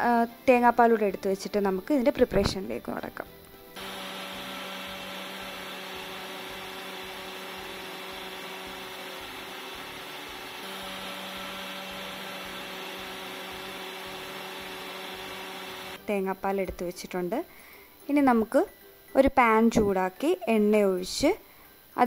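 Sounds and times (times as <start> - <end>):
electric mixer grinder running: 3.8 - 16.0.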